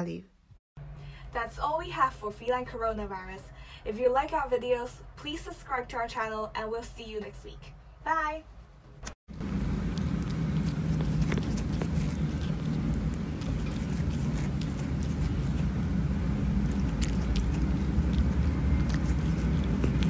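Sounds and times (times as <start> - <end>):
kitten licking paw: 9.4 - 20.0.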